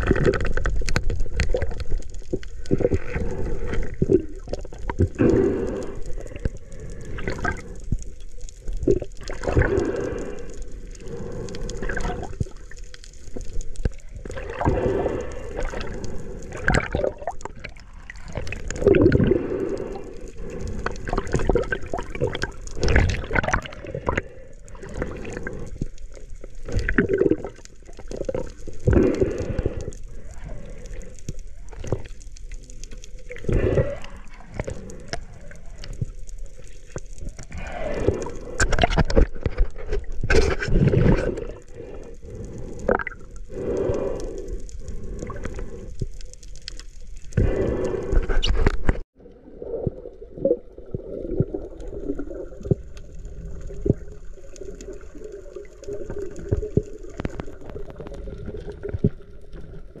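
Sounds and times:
underwater clicks and knocks: 0:00.0 - 0:03.2, 0:38.6 - 0:41.3
muffled underwater water sloshing: 0:00.0 - 1:00.0.

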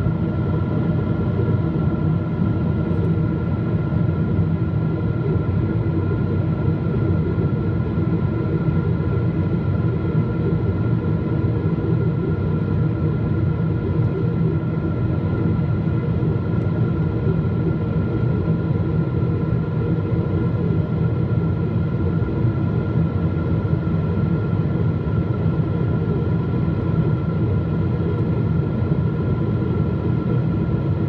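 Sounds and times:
jet engine rumble: 0:00.0 - 0:31.0.

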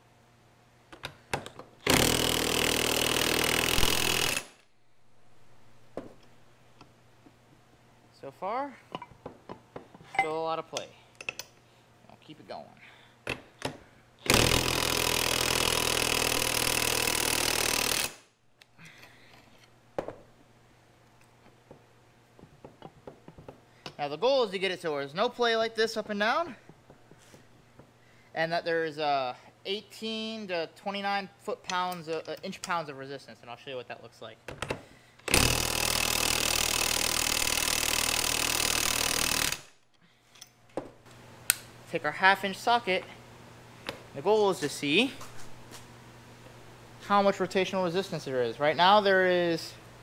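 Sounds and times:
impact wrench hammering: 0:01.4 - 0:04.6, 0:35.3 - 0:39.7.

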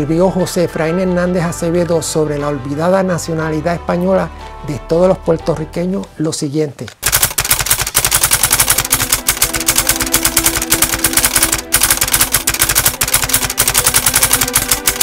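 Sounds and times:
typewriter keystrokes clattering: 0:06.9 - 0:15.0.

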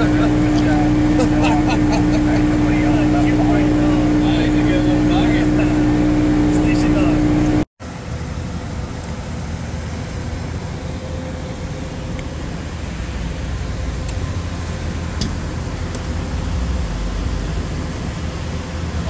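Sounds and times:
faint steady hum: 0:00.0 - 0:19.0
idling vehicle engines: 0:00.0 - 0:19.0
road traffic rumble: 0:00.0 - 0:19.0.

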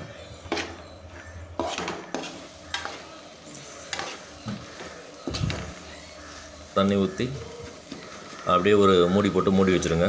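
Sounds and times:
frying sizzle: 0:00.0 - 0:10.0
metal spatula scraping a pan: 0:00.1 - 0:06.8.

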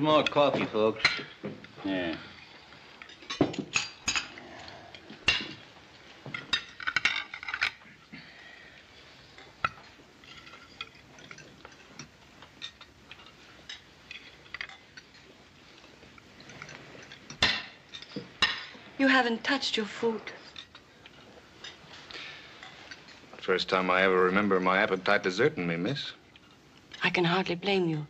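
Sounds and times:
cutlery clinking against plates: 0:00.1 - 0:01.8, 0:02.4 - 0:08.1, 0:09.2 - 0:18.8, 0:20.4 - 0:24.0.

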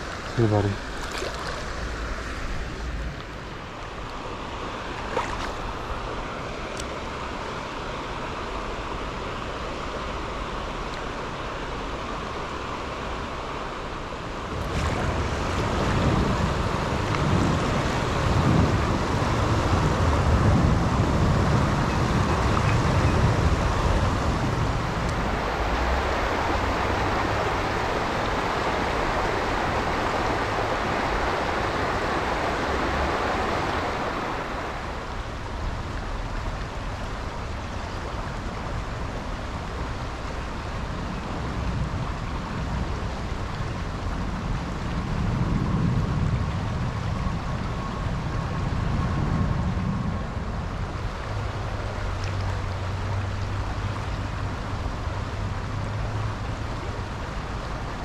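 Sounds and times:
creek water rushing over rocks: 0:00.0 - 0:49.0, 0:49.7 - 0:58.0
wind buffeting microphone: 0:14.3 - 0:58.0.

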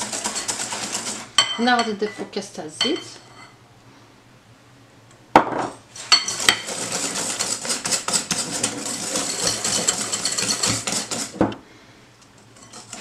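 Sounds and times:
wire whisk clattering in glass bowl: 0:00.0 - 0:02.0, 0:06.1 - 0:11.4.

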